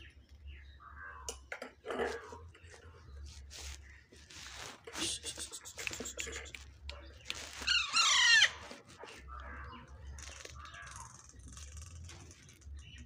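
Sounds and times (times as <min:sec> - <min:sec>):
parakeet chicks squawking: 0:05.0 - 0:11.5.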